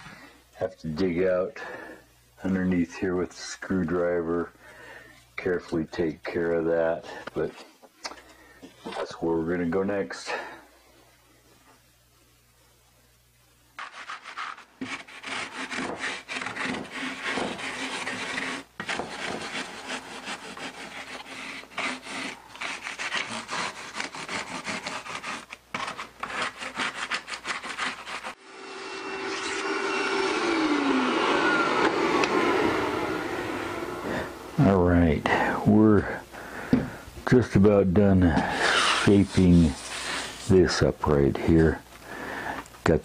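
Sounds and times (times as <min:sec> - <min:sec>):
plane rasping foam: 0:13.8 - 0:28.4, 0:38.3 - 0:40.9.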